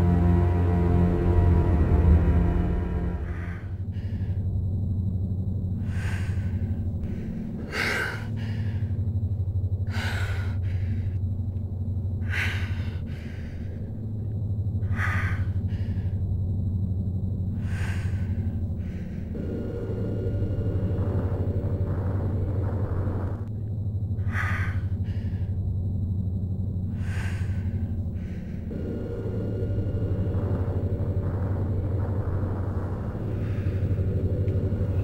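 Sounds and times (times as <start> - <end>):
breathy hissing swells: 0.0 - 4.5, 5.8 - 9.1, 14.8 - 16.2, 17.5 - 23.5, 24.2 - 25.6, 26.9 - 35.0
low pulsing drone: 0.0 - 35.0.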